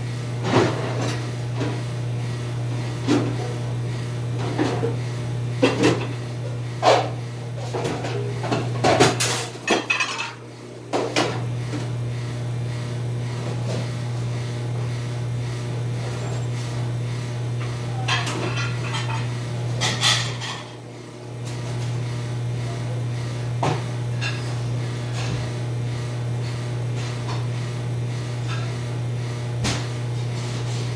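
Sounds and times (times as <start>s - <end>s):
low machine hum: 0.0s - 30.9s
dishes and cutlery clattering: 9.0s - 10.4s, 18.0s - 20.8s.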